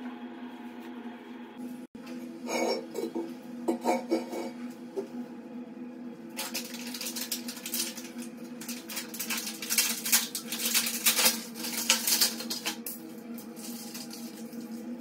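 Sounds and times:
steady low hum: 0:00.0 - 0:15.0
tools and plastic rustling: 0:06.4 - 0:12.9.

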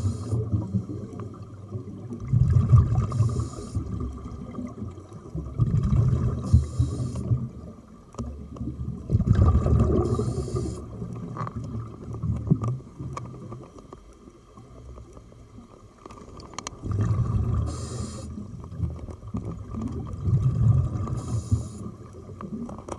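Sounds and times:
regulator inhale hiss: 0:00.0 - 0:01.1, 0:03.1 - 0:04.0, 0:06.4 - 0:07.4, 0:10.0 - 0:11.0, 0:17.6 - 0:18.5, 0:21.1 - 0:22.0
exhaled bubbles rumbling: 0:00.0 - 0:13.8, 0:16.3 - 0:22.9.

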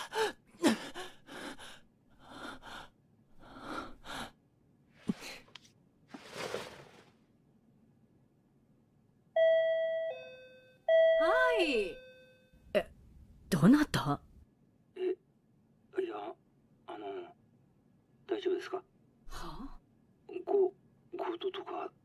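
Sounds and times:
doorbell chime: 0:09.4 - 0:12.5.

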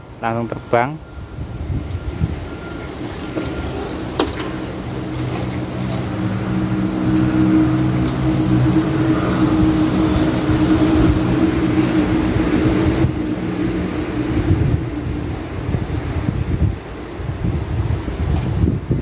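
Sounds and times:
low machine hum: 0:01.0 - 0:16.2
wind rumbling on microphone: 0:01.0 - 0:19.0.

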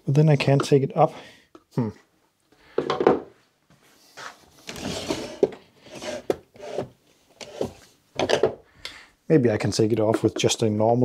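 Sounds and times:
rubbing and scraping of tools: 0:03.8 - 0:08.4.

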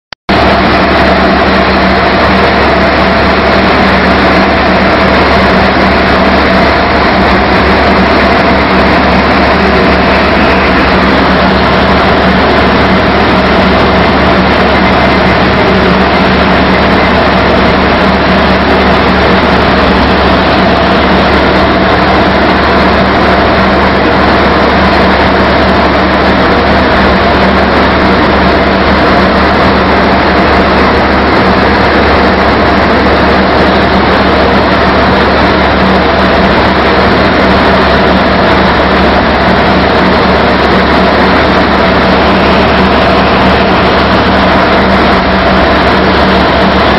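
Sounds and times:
low hum: 0:00.3 - 0:46.9
vibrating screen machine: 0:00.3 - 0:46.9.

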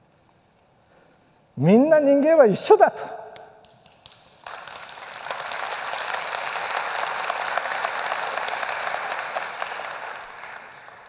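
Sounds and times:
audience applause: 0:03.8 - 0:11.0.

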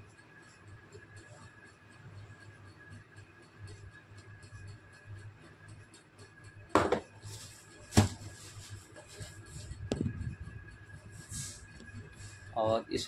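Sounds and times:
circuit board knocking on box: 0:06.8 - 0:07.1
cardboard and packing rustling: 0:07.3 - 0:09.4.

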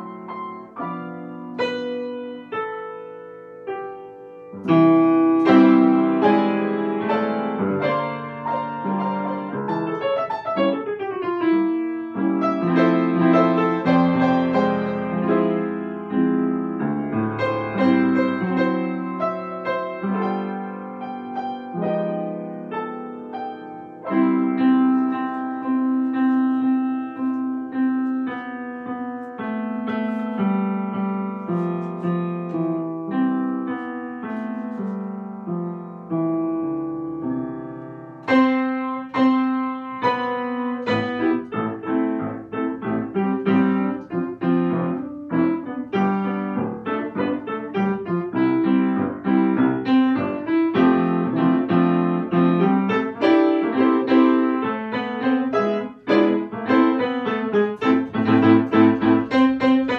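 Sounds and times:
solo piano playing: 0:00.0 - 0:59.9.

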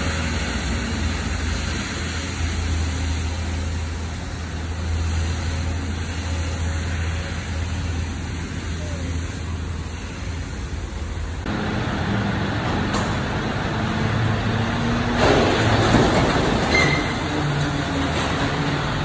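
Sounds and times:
garbage truck engine and hydraulics: 0:00.0 - 0:19.0
brief high squeak: 0:16.7 - 0:17.3.

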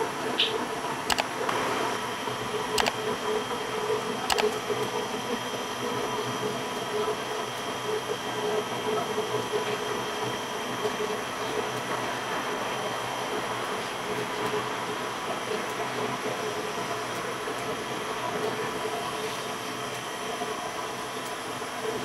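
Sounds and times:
sharp clicks: 0:01.1 - 0:01.6, 0:02.8 - 0:03.0, 0:04.3 - 0:04.6.

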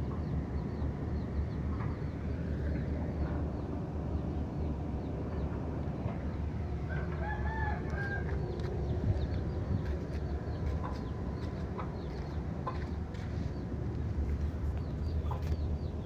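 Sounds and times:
low rumble: 0:00.0 - 0:16.0
rooster crowing: 0:06.9 - 0:08.4.

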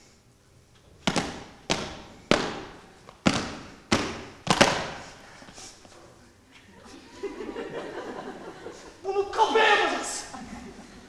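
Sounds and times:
body percussion hits in a hall: 0:01.0 - 0:05.2.

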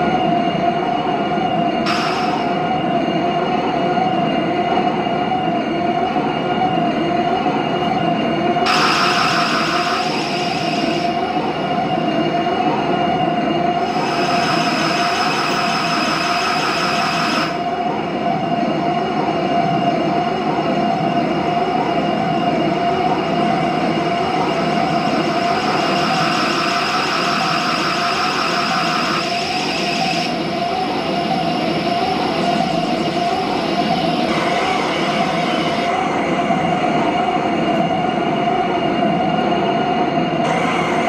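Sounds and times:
electronic drone tone: 0:13.8 - 0:17.6.

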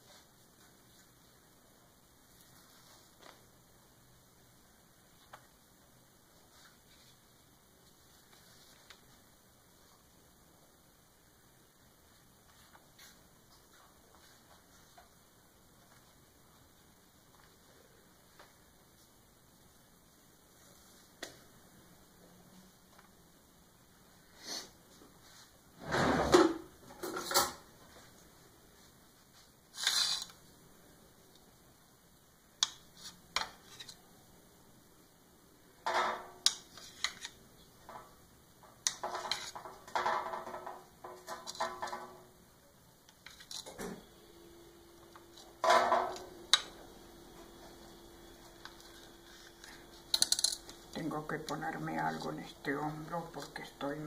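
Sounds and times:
rustling of baking paper: 0:02.3 - 0:03.5, 0:06.4 - 0:09.3.

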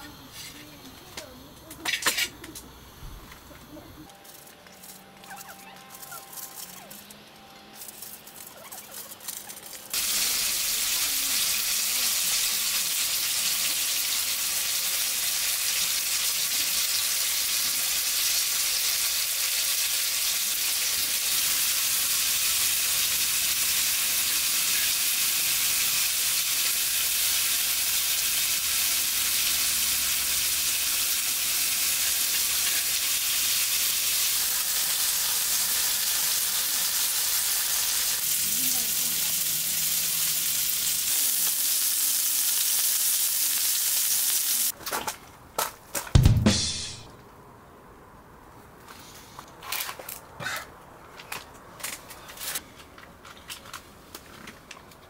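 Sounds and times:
food sizzling in a pan: 0:09.9 - 0:44.8.

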